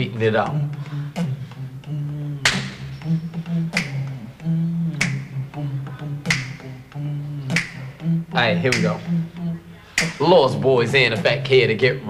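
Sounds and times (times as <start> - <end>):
hummed vocal bass line: 0.0 - 12.0
beatbox snare click: 2.4 - 2.8, 3.7 - 4.2, 4.9 - 5.4, 6.2 - 8.0, 8.6 - 9.1, 10.0 - 10.4.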